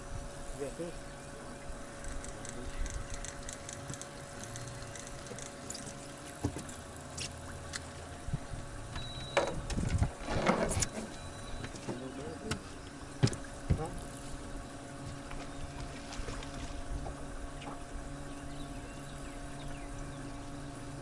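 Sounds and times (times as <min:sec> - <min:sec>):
faint steady hum: 0:00.0 - 0:21.0
fishing reel ticking: 0:02.0 - 0:05.8.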